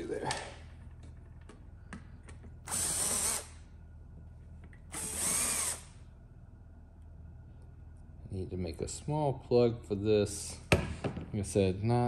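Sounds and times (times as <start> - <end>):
electric screwdriver whirring: 2.7 - 3.5, 4.9 - 5.8.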